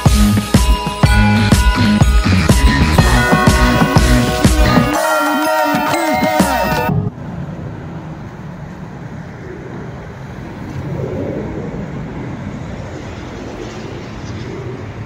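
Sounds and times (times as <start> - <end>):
background music: 0.0 - 6.9
road traffic rumble: 6.8 - 15.0.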